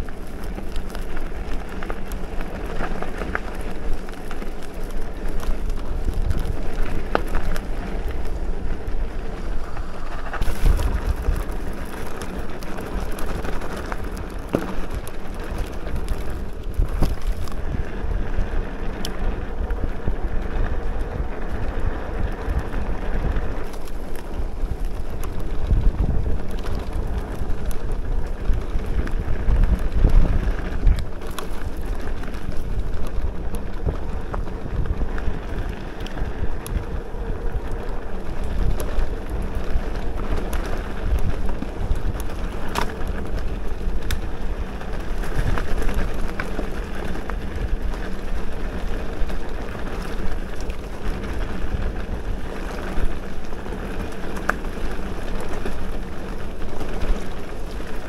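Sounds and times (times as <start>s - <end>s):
bike knocks and rattles: 0.0s - 19.8s
bike tyres rolling on rough track: 0.0s - 58.0s
wind buffeting microphone: 0.0s - 58.0s.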